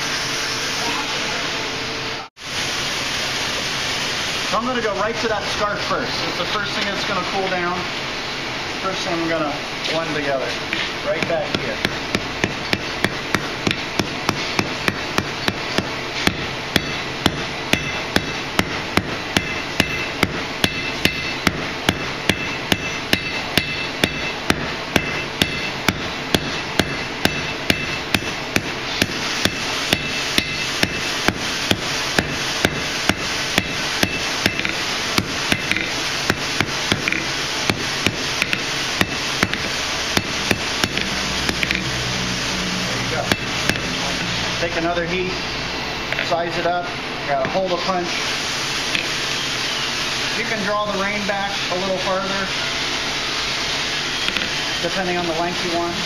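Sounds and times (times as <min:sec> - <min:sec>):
hammer striking hot steel on anvil: 0:11.1 - 0:42.0, 0:43.1 - 0:44.2, 0:48.9 - 0:49.2, 0:54.2 - 0:54.6.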